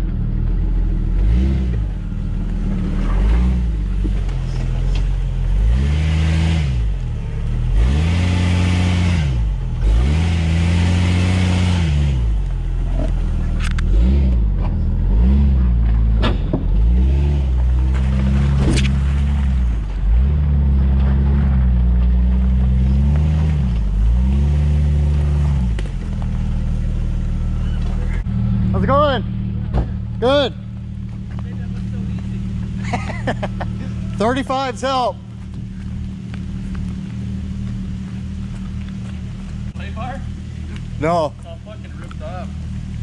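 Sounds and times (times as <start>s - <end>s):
engine revving: 0.0s - 43.0s
sharp knocks from vehicle: 29.7s - 30.0s.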